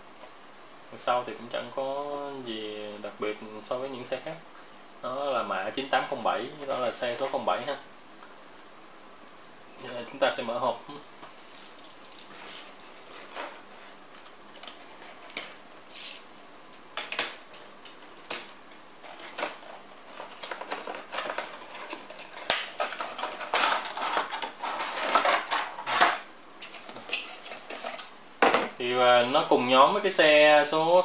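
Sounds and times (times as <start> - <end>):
packaging rustling: 19.0 - 28.2.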